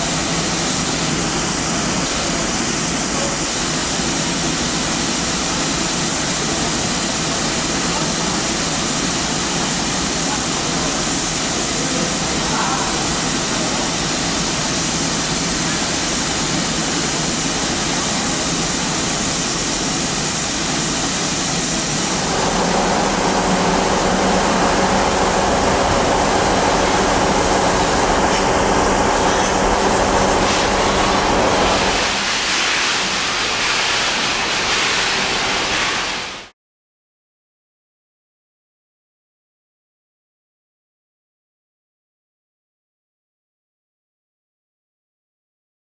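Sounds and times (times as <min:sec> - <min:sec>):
steam locomotive hissing: 0:00.0 - 0:36.5.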